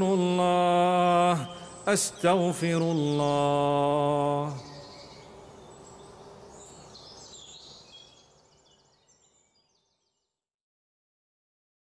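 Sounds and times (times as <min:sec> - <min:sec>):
faint background ambience: 0:00.0 - 0:09.5.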